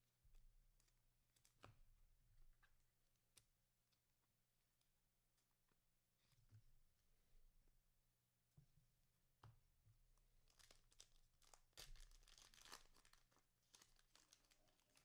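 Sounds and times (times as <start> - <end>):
cellophane wrapper tearing: 10.4 - 15.0.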